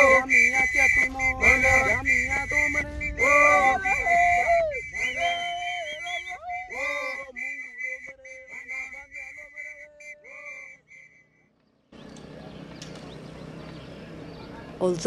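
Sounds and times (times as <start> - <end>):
men singing a chant: 0.0 - 10.7
shrill whistle blasts: 0.0 - 11.3.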